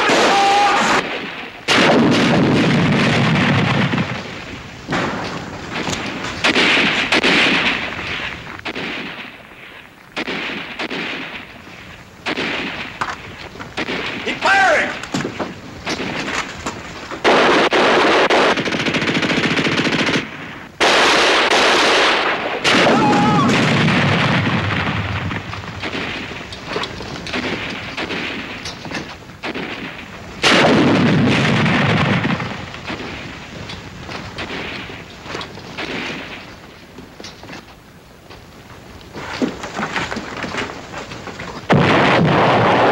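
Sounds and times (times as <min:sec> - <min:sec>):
machine-gun bursts: 0:17.2 - 0:23.7.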